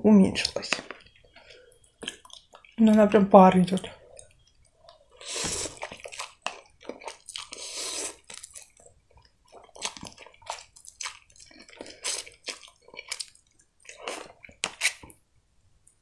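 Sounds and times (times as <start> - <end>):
wet chewing: 0.4 - 15.2
slurping noodles: 5.1 - 6.4, 7.4 - 8.4.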